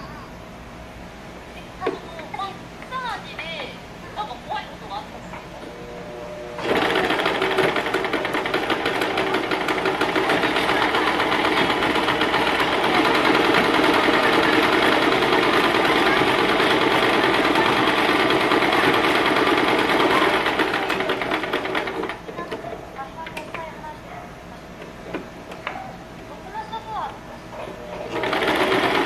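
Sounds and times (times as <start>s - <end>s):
sewing machine running: 6.6s - 22.4s, 27.8s - 29.0s.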